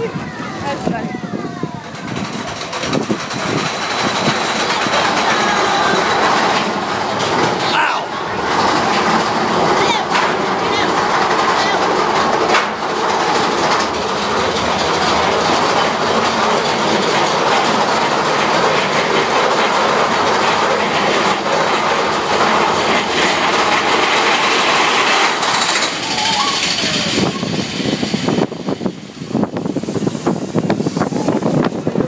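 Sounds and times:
roller coaster cars on rails: 0:00.0 - 0:32.0.

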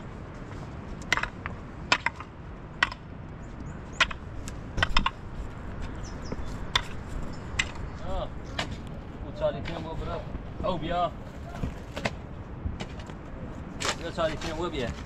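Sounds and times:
low steady background noise: 0:00.0 - 0:15.0
sharp knocks: 0:04.0 - 0:05.2, 0:06.3 - 0:08.8.

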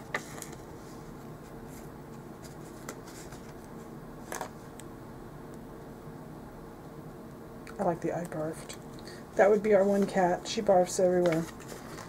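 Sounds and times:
faint steady hum: 0:00.0 - 0:12.0
sticker sheets rustling: 0:09.4 - 0:12.0.

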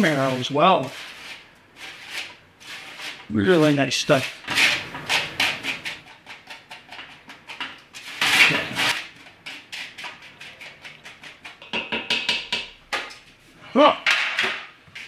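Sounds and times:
spatula scraping baking sheet: 0:00.0 - 0:11.7.

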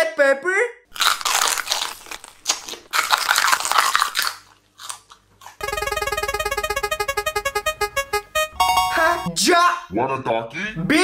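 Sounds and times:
crunchy biting and chewing candy: 0:00.9 - 0:05.6
spinning wheel ticking tones: 0:05.6 - 0:09.3.

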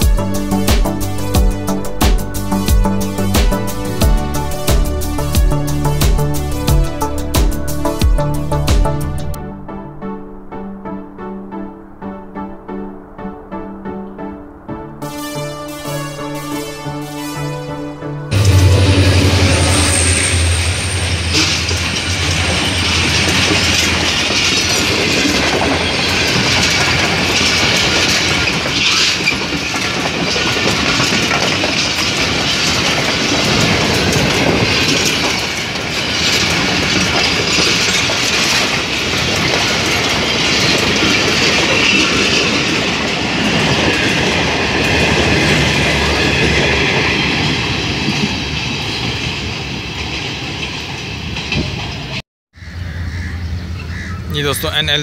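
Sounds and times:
train wheels clattering over rail joints: 0:18.4 - 0:52.2.

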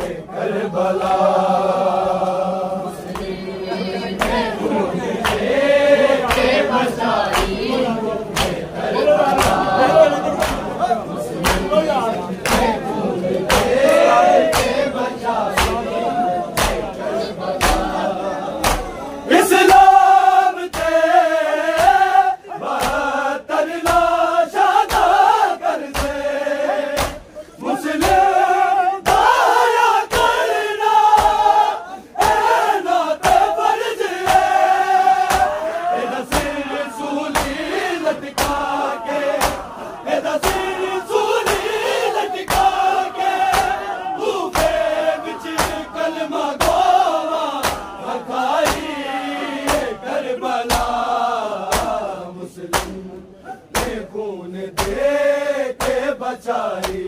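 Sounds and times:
crowd chanting in chorus: 0:00.0 - 0:57.0
hands slapping chests: 0:03.0 - 0:03.4, 0:04.2 - 0:04.5, 0:05.2 - 0:10.7, 0:11.4 - 0:14.9, 0:15.5 - 0:15.9, 0:16.5 - 0:17.0, 0:17.6 - 0:18.0, 0:18.6 - 0:19.0, 0:20.6 - 0:21.1, 0:21.7 - 0:22.1, 0:22.7 - 0:24.2, 0:24.8 - 0:26.3, 0:26.9 - 0:27.3, 0:27.9 - 0:30.5, 0:31.1 - 0:31.6, 0:32.2 - 0:32.6, 0:33.2 - 0:33.6, 0:34.2 - 0:48.0, 0:48.6 - 0:49.0, 0:49.6 - 0:50.0, 0:50.6 - 0:52.1, 0:52.7 - 0:53.0, 0:53.7 - 0:54.1, 0:54.7 - 0:55.2, 0:55.8 - 0:56.1, 0:56.8 - 0:57.0.

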